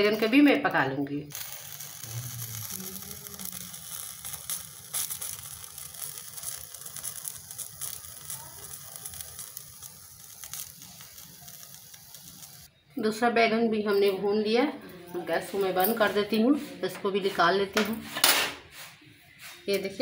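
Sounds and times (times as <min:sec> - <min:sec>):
skin crackling and sizzling: 0:00.0 - 0:12.8
gas burner hissing: 0:01.3 - 0:12.7.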